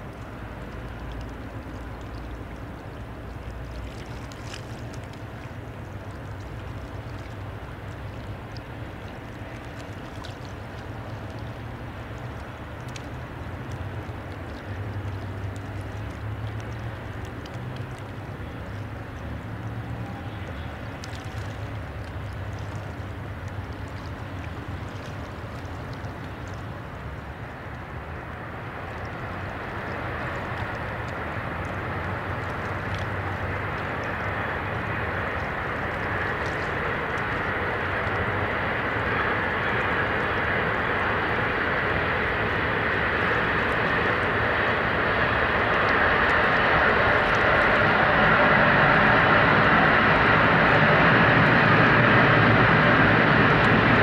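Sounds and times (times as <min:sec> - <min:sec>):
broad rushing noise: 0:00.0 - 0:54.0
water wash: 0:00.0 - 0:54.0
barge diesel engine droning: 0:31.2 - 0:54.0.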